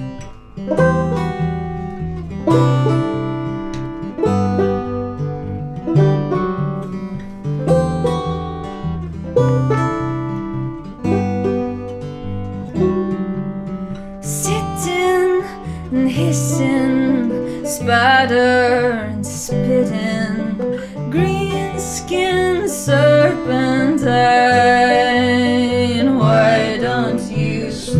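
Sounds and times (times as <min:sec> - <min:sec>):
banjo playing: 0:00.0 - 0:27.9.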